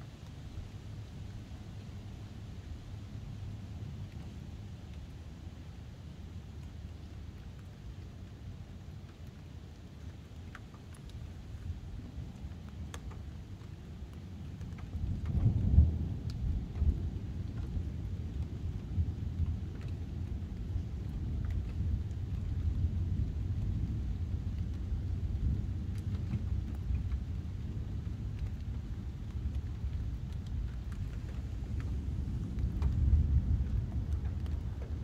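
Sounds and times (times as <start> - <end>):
faint rain ticks: 0.0 - 35.0
thunder rumbling: 14.9 - 35.0.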